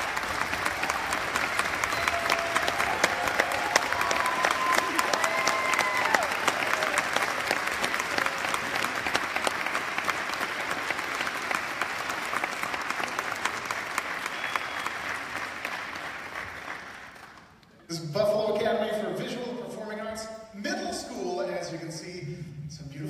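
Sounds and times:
audience applauding: 0:00.0 - 0:17.7.

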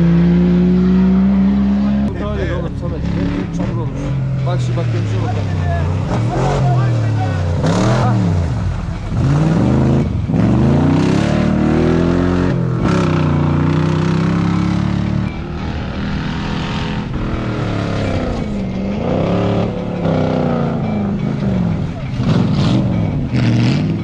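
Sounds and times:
race car engines revving: 0:00.0 - 0:24.0.

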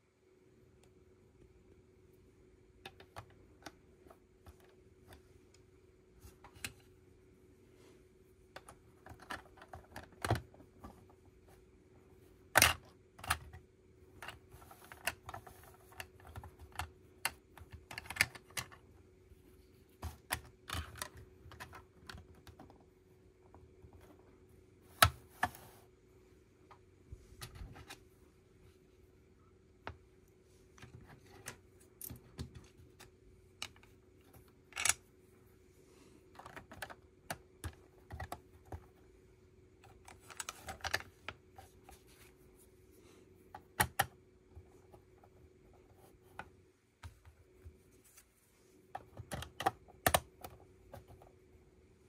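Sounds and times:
faint steady hum: 0:00.0 - 0:52.0
plastic bricks clicking: 0:14.2 - 0:18.8, 0:34.7 - 0:35.0.

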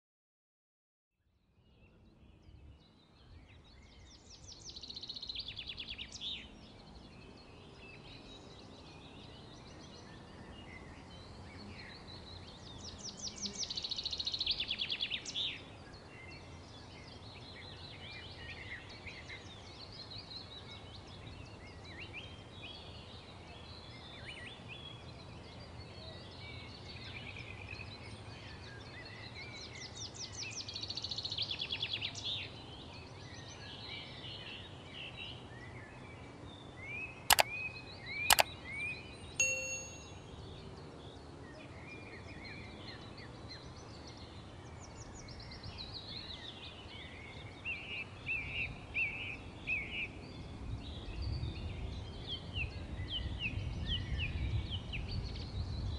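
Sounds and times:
low steady background noise: 0:01.3 - 0:55.9
bird trill: 0:39.4 - 0:40.4.

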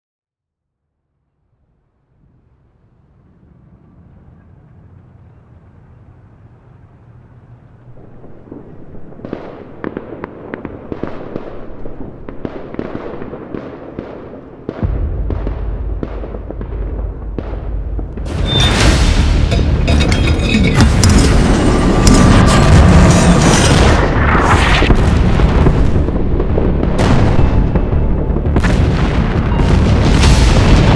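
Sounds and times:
heavy low rumble: 0:14.8 - 0:30.9
low rumble: 0:14.8 - 0:30.9.

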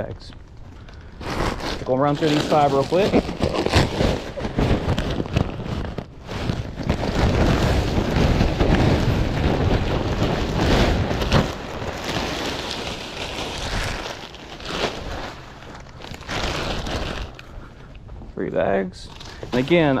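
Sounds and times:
plastic bag rustling: 0:00.0 - 0:20.0
wood chips pouring: 0:01.2 - 0:03.6, 0:06.7 - 0:17.4.

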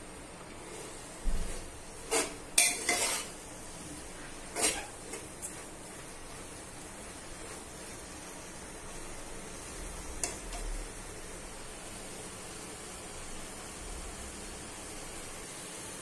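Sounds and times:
faint steady hiss: 0:00.0 - 0:16.0
metal spoon scraping a metal pot: 0:02.0 - 0:03.4, 0:04.5 - 0:05.2.

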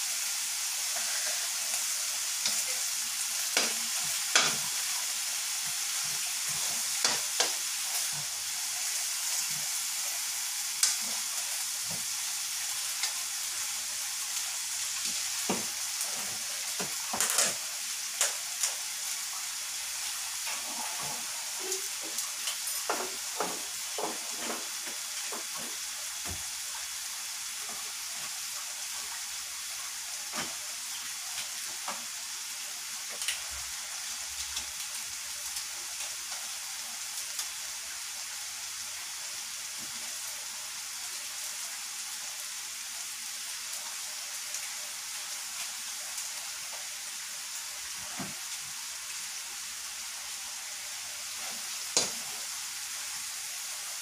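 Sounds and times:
chicken frying in oil: 0:00.0 - 0:54.0
oil pops and crackles: 0:10.8 - 0:11.0, 0:16.7 - 0:18.8.

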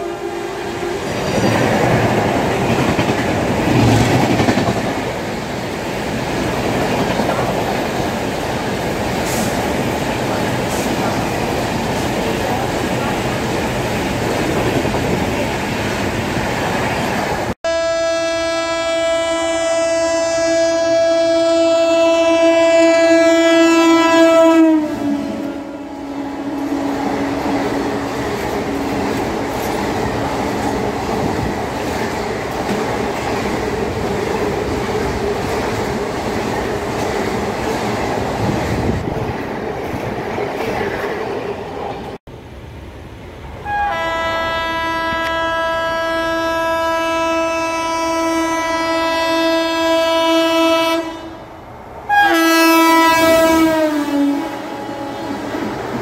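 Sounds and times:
train wheels on track: 0:00.0 - 0:17.6, 0:23.3 - 0:56.0
train horn blast: 0:17.6 - 0:29.2, 0:43.6 - 0:51.5, 0:52.1 - 0:55.7.

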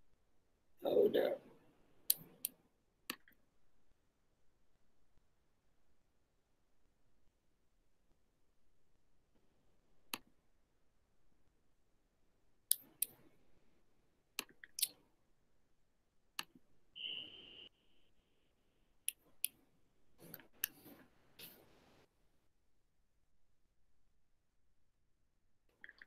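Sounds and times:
computer mouse clicks: 0:02.1 - 0:03.4, 0:12.7 - 0:13.3, 0:14.4 - 0:15.0, 0:20.2 - 0:21.6
brief high beep: 0:17.0 - 0:17.7.

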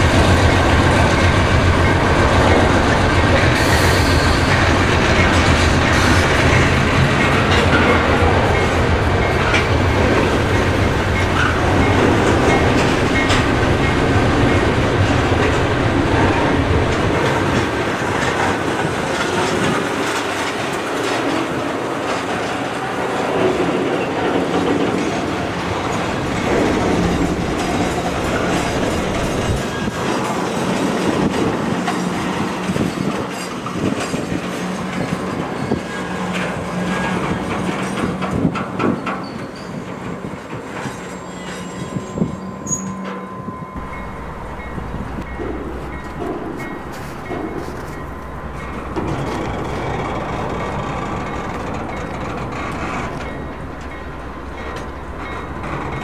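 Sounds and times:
clickety-clack over rail joints: 0:00.0 - 0:43.2, 0:43.8 - 0:56.0
train wheels rumbling on rail: 0:00.0 - 0:56.0
wheel squeal: 0:03.6 - 0:04.8, 0:38.8 - 0:40.0, 0:40.8 - 0:53.6.

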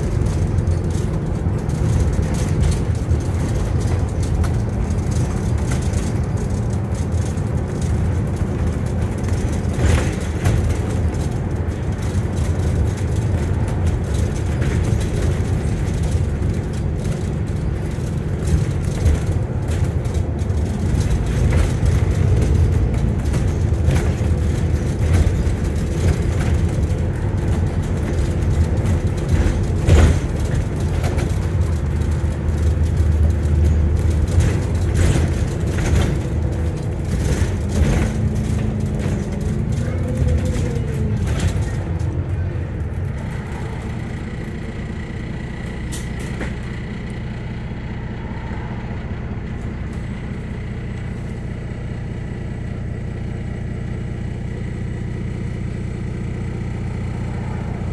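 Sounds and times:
bus engine and road hum: 0:00.0 - 0:57.9
sharp knocks from bus body: 0:18.0 - 0:39.8.

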